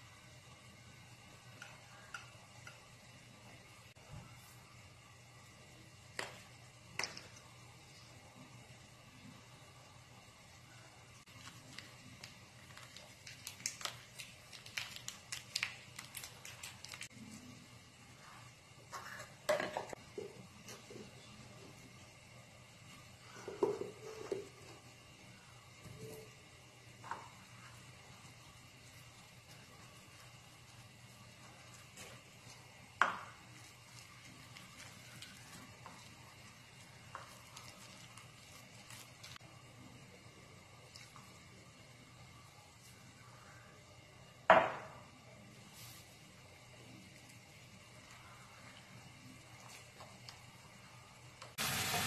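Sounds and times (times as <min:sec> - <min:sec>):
plastic sachet crackling: 0:11.3 - 0:17.1.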